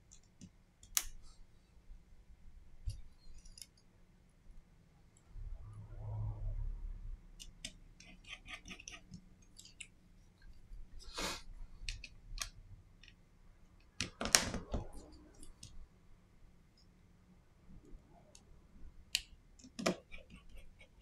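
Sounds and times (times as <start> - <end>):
scrape: 11.0 - 11.5.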